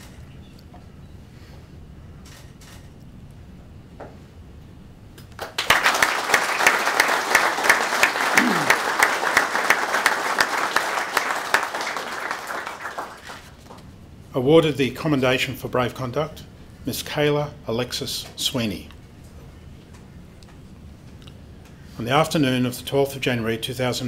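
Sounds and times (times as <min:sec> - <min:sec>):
audience applauding: 0:05.3 - 0:13.8.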